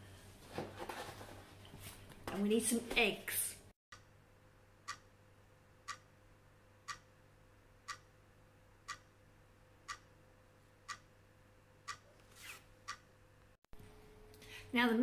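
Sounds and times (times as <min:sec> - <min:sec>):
clock ticking: 0:03.9 - 0:04.2, 0:04.8 - 0:05.2, 0:05.8 - 0:06.2, 0:06.8 - 0:07.2, 0:07.8 - 0:08.2, 0:08.8 - 0:09.2, 0:09.8 - 0:10.2, 0:10.8 - 0:11.2, 0:11.8 - 0:12.1.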